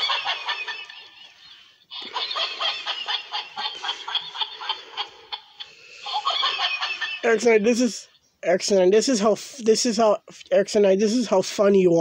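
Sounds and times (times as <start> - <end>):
toy cat laughing: 0.0 - 1.2, 1.9 - 7.5.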